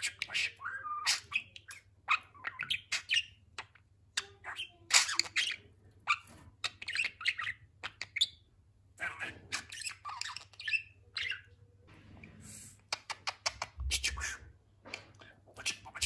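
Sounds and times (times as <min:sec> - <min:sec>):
budgerigar chattering: 0:00.0 - 0:03.4, 0:13.0 - 0:16.0.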